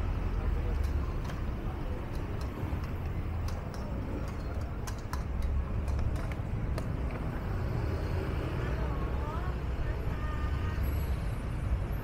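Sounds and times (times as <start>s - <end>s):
low traffic rumble: 0.0s - 12.0s
sharp clicks and ticks: 0.6s - 7.3s.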